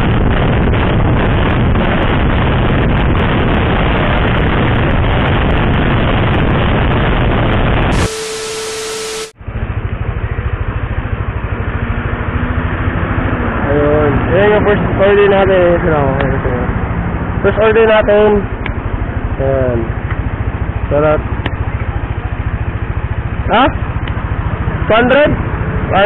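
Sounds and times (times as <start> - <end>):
wind rushing over microphone: 0.0 - 9.3
motorcycle engine: 0.0 - 26.0
road noise: 0.0 - 26.0.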